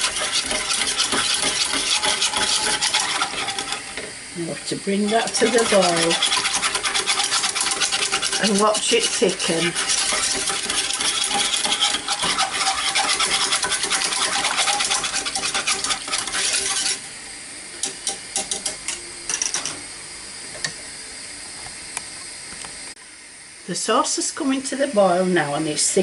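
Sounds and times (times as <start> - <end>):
whisk scraping saucepan: 0.0 - 17.2.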